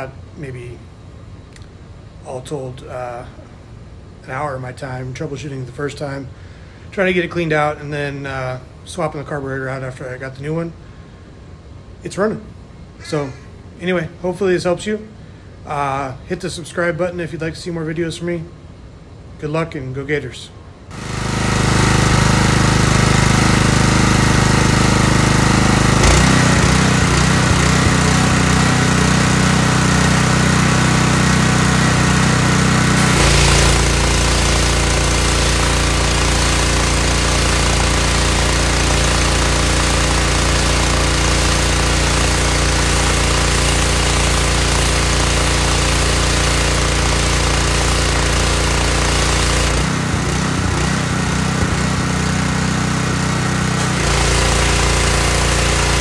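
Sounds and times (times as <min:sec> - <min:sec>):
pressure washer engine running: 0:20.9 - 0:56.0
water spraying onto concrete: 0:20.9 - 0:56.0.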